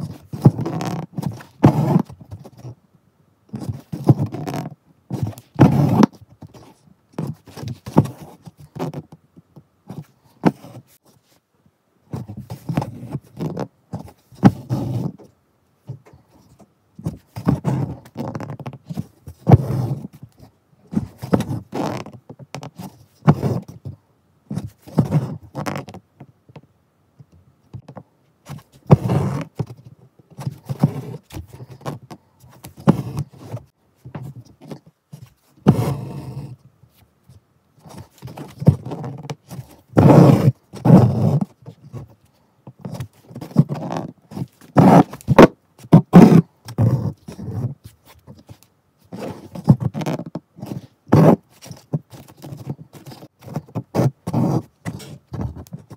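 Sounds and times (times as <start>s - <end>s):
needle and thread through cloth: 0.0s - 2.8s, 3.5s - 11.5s, 12.1s - 26.6s, 27.2s - 55.9s.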